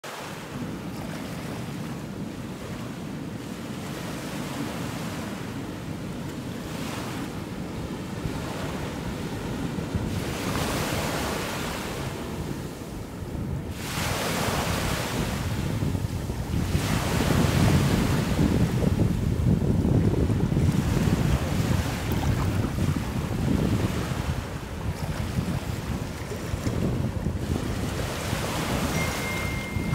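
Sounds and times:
sea waves washing in: 0.0 - 29.9
wind rumble on microphone: 0.3 - 29.9.

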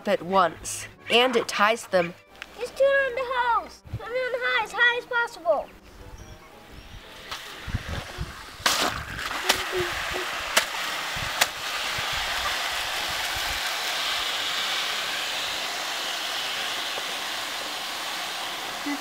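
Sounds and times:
water hose hissing: 7.1 - 19.0.

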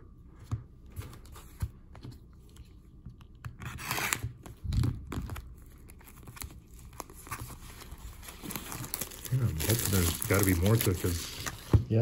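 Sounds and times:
plastic wrap tearing and crinkling: 3.6 - 11.7.

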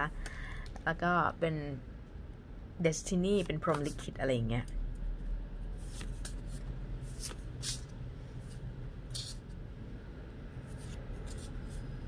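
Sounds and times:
low steady hum: 0.0 - 12.0
cards sliding swishes: 5.8 - 9.6, 10.6 - 11.9.

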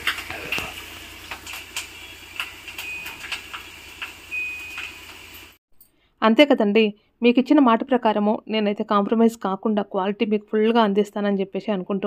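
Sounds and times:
frying in hot oil: 0.0 - 5.6.

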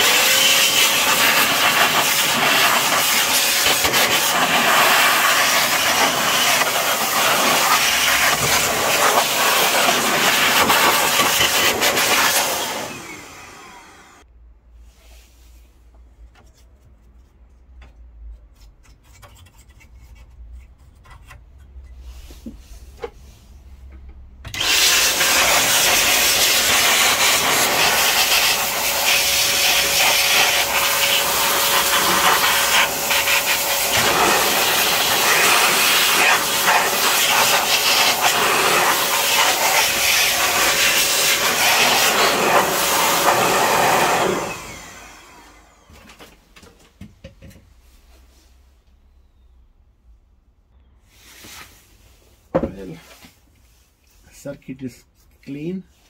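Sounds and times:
air blower rushing air: 0.0 - 14.2, 24.5 - 45.9
brush scratching circuit board: 18.3 - 21.7.

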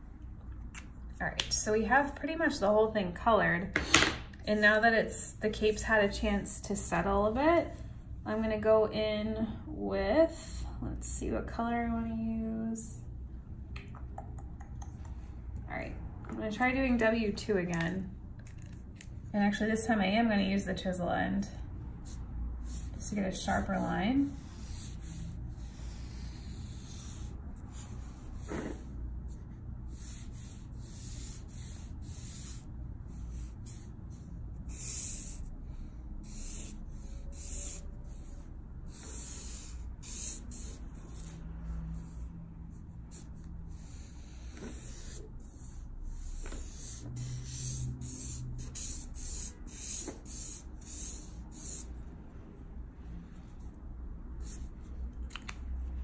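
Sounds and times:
low steady hum: 0.0 - 56.0
marker scraping on paper: 22.0 - 52.0, 54.4 - 55.6.

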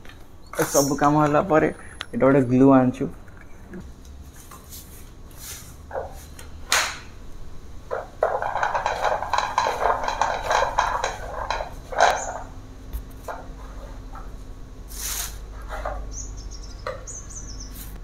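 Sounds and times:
fast plastic rattle: 7.9 - 12.5.

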